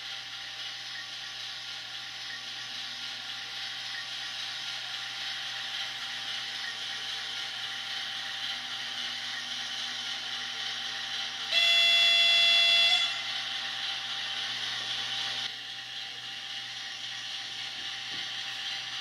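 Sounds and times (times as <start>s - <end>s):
model locomotive diesel sound: 0.0s - 19.0s
motor and gears whirring: 0.0s - 19.0s
air horn blast: 11.5s - 13.3s.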